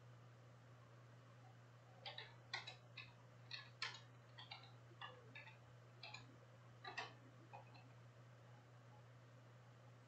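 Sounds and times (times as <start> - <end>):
trading cards clicking: 2.0 - 7.9.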